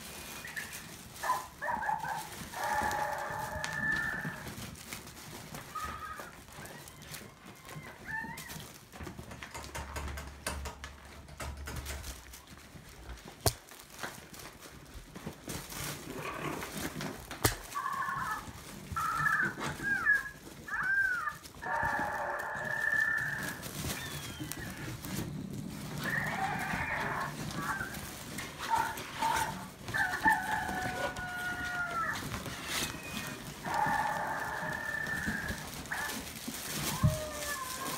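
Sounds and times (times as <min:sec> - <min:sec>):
puppies yipping and squealing: 0:00.1 - 0:08.8, 0:17.6 - 0:37.9
knocks from paws and toys: 0:08.1 - 0:12.4.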